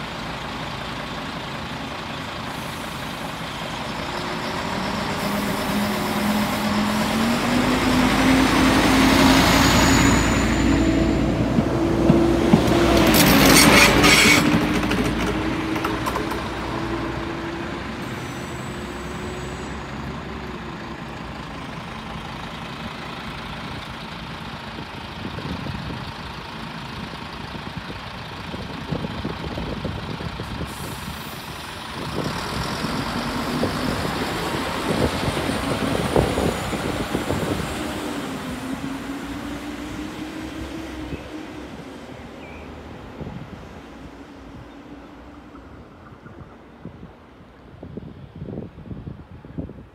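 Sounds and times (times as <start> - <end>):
diesel train engine: 0.0 - 49.9.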